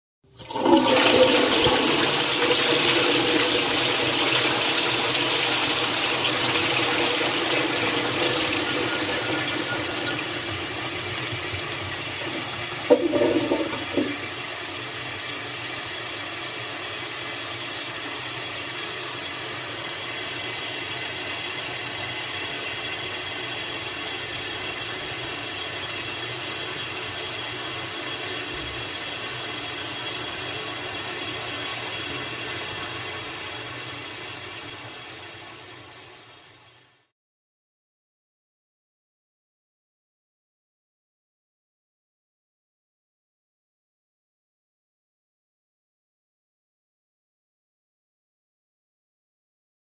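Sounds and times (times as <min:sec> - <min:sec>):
toilet flushing: 0:00.3 - 0:36.8
water gurgle: 0:00.4 - 0:34.8.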